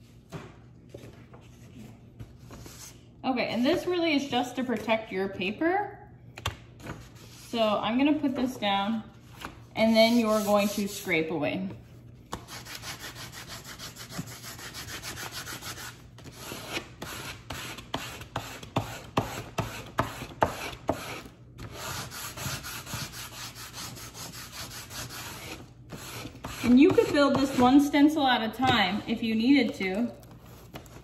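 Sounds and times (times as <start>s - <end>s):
scraper rubbing over paper: 9.8s - 11.2s, 12.4s - 27.9s.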